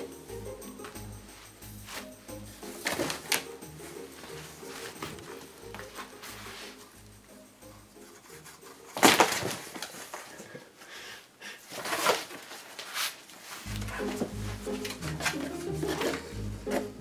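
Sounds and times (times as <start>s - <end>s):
background music: 0.0s - 9.8s, 13.6s - 17.0s
cardboard scraping and rustling: 8.9s - 10.3s, 11.7s - 16.3s.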